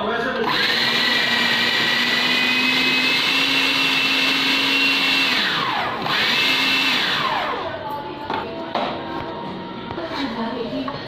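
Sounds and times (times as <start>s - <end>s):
food processor motor whining: 0.4s - 7.7s.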